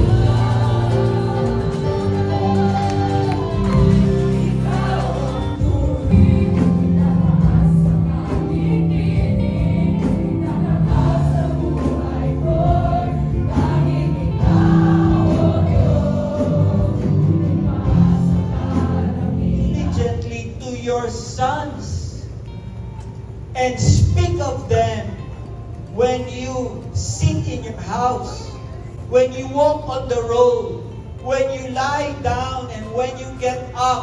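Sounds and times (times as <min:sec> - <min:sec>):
congregation singing: 0:00.0 - 0:22.1
instrumental backing music: 0:00.0 - 0:34.0.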